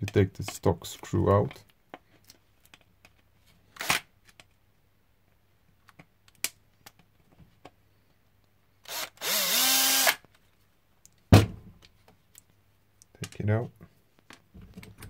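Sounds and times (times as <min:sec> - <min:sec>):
power screwdriver whirring: 0:08.8 - 0:10.2.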